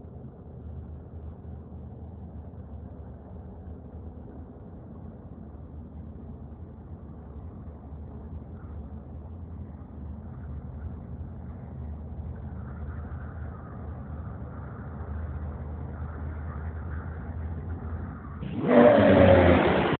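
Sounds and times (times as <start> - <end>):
engine humming passing by: 12.5 - 20.0.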